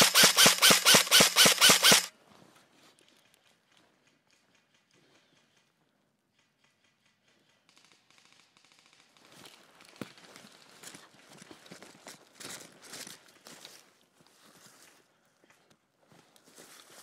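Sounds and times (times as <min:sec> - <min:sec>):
footsteps on dry pine needles: 0:16.1 - 0:17.0.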